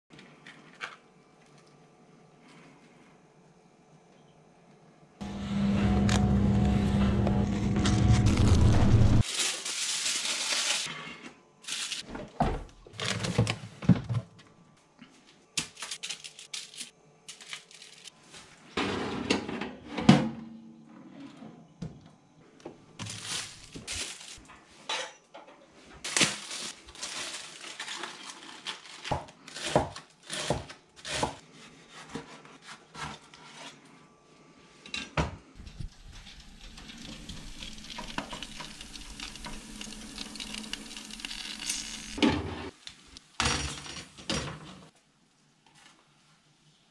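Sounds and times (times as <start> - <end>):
toaster oven hum: 5.2 - 9.2, 35.6 - 42.4
foil crinkling: 7.5 - 11.0, 11.6 - 12.1, 15.6 - 18.2, 23.0 - 24.5, 26.0 - 30.3, 36.0 - 42.2
bacon sizzling: 35.9 - 42.2.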